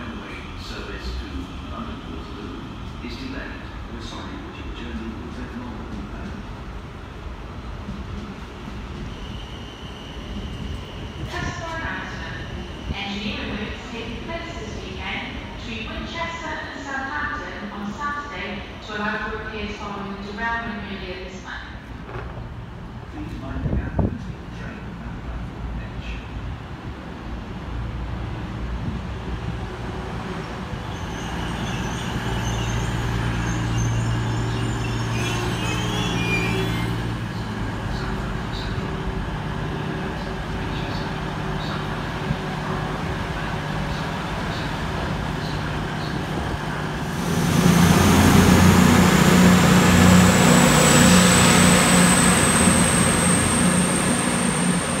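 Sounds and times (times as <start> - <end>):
train running hum: 0.0 - 20.3, 21.4 - 55.0
high train whine: 0.0 - 55.0
faint train squeals: 7.9 - 13.8, 30.7 - 39.0, 49.9 - 55.0.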